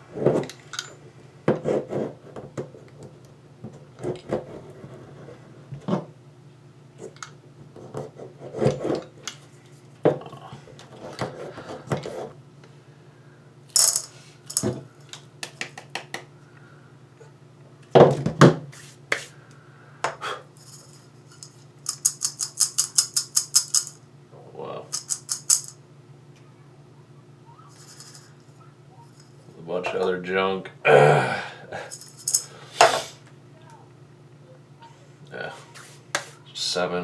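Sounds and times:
objects knocking on workbench: 1.5s - 2.7s, 17.9s - 18.7s.

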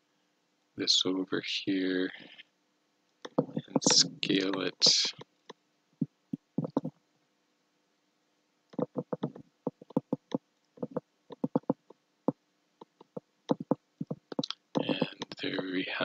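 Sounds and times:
faint electrical hum: 0.0s - 16.0s
mouse and keyboard clicks: 3.2s - 5.3s, 6.3s - 6.9s, 8.7s - 11.9s, 12.8s - 15.4s.

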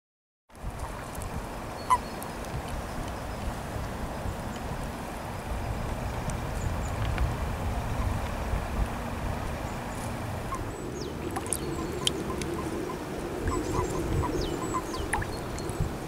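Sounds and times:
wind rumbling on microphone: 0.5s - 16.0s
birds high falling calls: 9.7s - 16.0s
toads croaking chorus: 10.0s - 15.7s.

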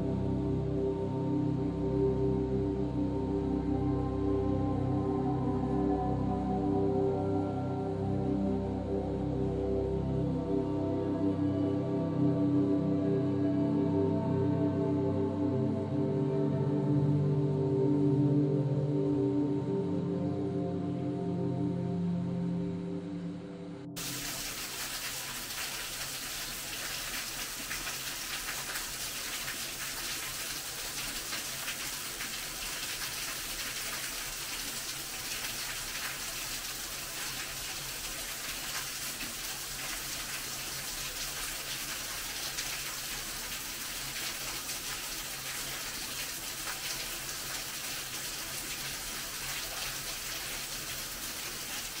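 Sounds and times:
small waterfall splashing: 24.0s - 52.0s.

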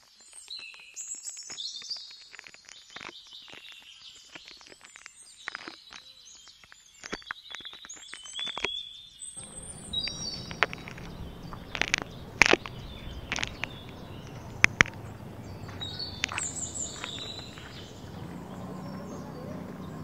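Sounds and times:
outdoor background noise: 0.0s - 20.0s
small birds chirping: 0.1s - 20.0s
handling clicks and knocks: 9.4s - 20.0s.

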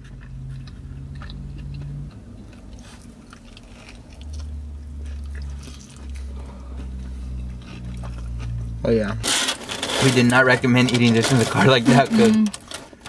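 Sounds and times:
person biting and chewing food: 0.0s - 9.6s
low steady hum: 0.0s - 13.0s.

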